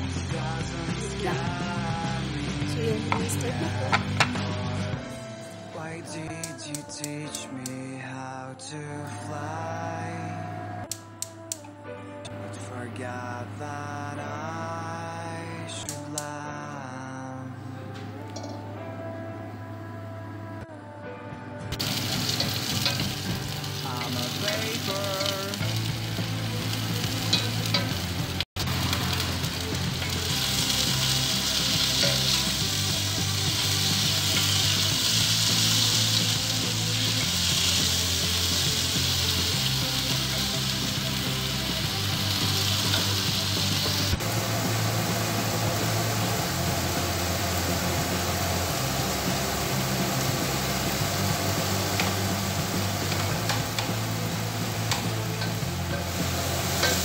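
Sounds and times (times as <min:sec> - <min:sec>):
background music with bass line: 0:00.0 - 0:08.0, 0:20.7 - 0:57.0
food sizzling in hot oil: 0:21.8 - 0:57.0.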